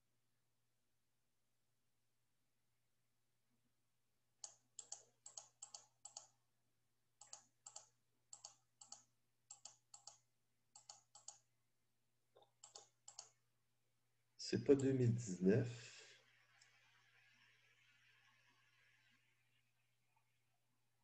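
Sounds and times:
computer clicks in pairs: 4.4 - 6.4, 7.2 - 10.2, 10.8 - 11.4, 12.4 - 13.4.

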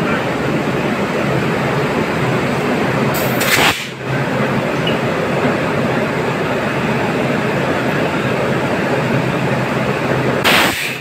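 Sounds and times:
electric locomotive running: 0.0 - 11.0
short hiss: 3.2 - 3.9, 10.4 - 11.0.

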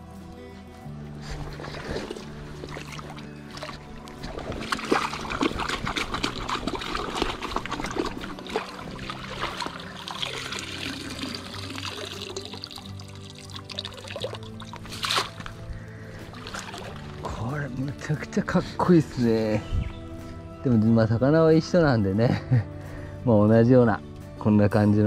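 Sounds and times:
background music low notes: 0.0 - 25.0
water pouring from net: 1.2 - 17.4
small splashes: 1.3 - 17.4
stream water trickling: 1.3 - 18.3.

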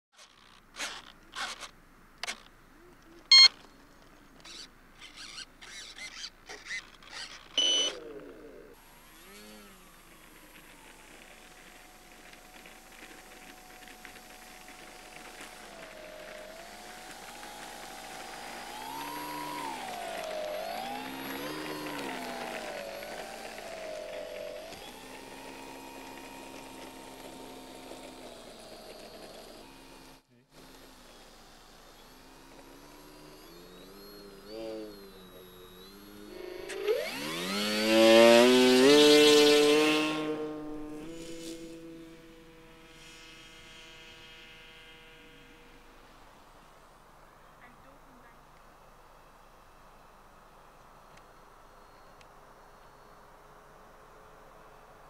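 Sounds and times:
short clicks and scrapes: 0.2 - 2.5
buzzy beep: 3.3 - 3.6, 7.6 - 8.0
loud electronic beep: 3.3 - 3.6, 7.6 - 8.0
model plane electric motor whine: 4.4 - 48.3, 49.6 - 55.0.

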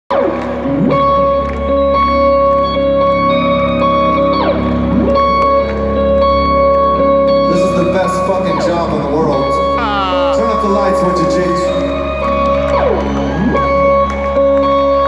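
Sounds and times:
electric guitar droning notes: 0.1 - 15.0.

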